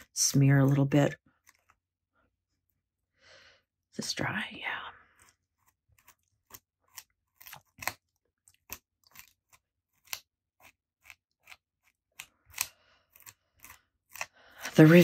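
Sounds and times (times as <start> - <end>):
scratchy rubbing on paper: 14.6 - 15.0.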